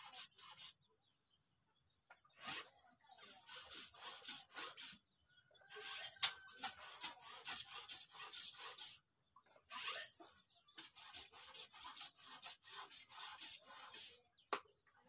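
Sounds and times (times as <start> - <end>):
rough scraping: 2.3 - 5.0, 5.6 - 9.0, 9.6 - 14.2.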